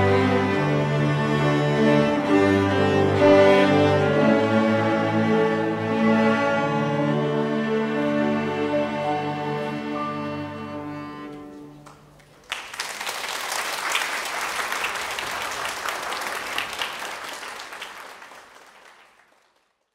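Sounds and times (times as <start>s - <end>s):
cello ensemble held chord: 0.0s - 11.9s
audience applause: 11.8s - 19.9s.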